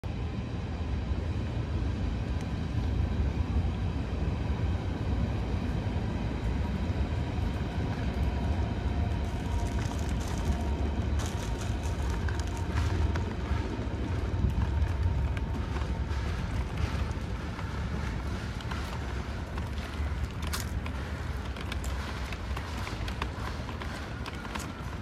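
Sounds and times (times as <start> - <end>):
low rumble of vehicle noise: 0.0 - 25.0
faint whining tones: 0.3 - 25.0
crackling clicks: 14.4 - 25.0.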